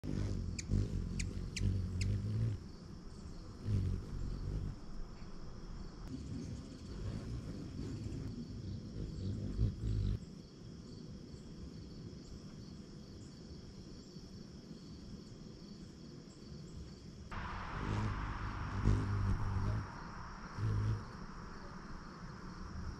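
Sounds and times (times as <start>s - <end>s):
insects chirping: 0.0s - 22.9s
low rumble on microphone: 17.3s - 22.9s.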